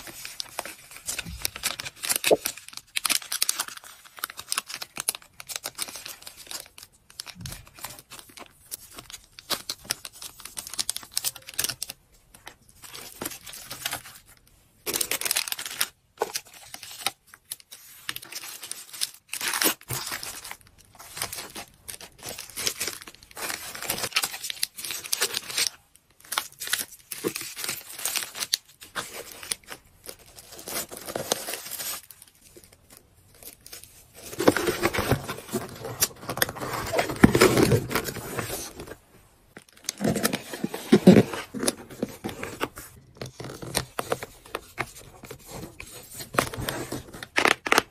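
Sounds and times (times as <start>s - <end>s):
packaging crinkling and rustling: 0.0s - 47.9s.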